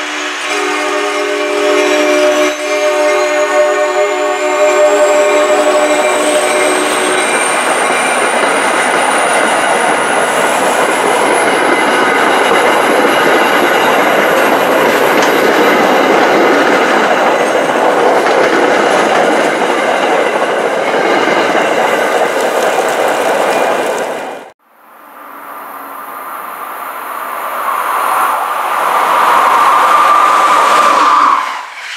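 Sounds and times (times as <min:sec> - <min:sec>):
train horn chord: 0:00.0 - 0:07.4
train wheels and rail rushing: 0:00.0 - 0:31.9.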